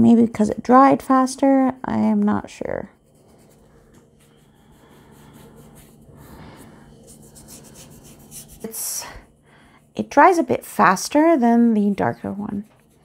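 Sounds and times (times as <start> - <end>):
paint pen rubbing on paper: 3.0 - 9.4, 10.1 - 13.0.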